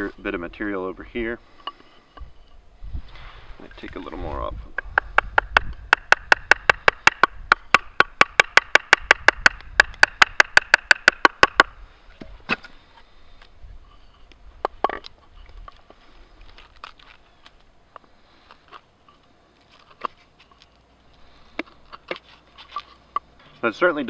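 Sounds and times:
stick knocking on wood: 0:04.7 - 0:11.7.

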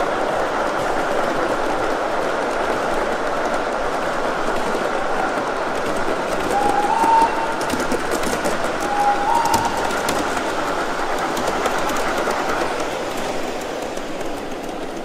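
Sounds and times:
model train wheels clattering: 0:00.0 - 0:15.0
rail-joint clicks: 0:00.0 - 0:15.0
two-note locomotive whistle: 0:06.5 - 0:07.8, 0:08.8 - 0:10.3.

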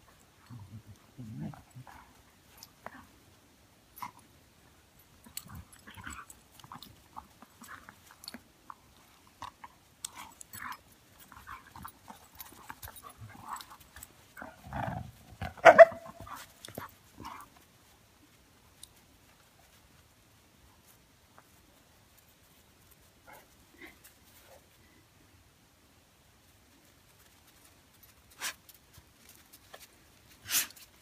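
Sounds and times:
dogs playing and scuffling: 0:00.0 - 0:25.2, 0:26.4 - 0:31.0
dog barking: 0:15.6 - 0:16.2.

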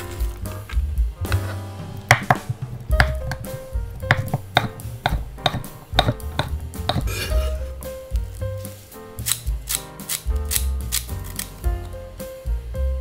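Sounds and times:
light background music: 0:00.0 - 0:13.0
knife tapping on wooden board: 0:02.1 - 0:07.3.

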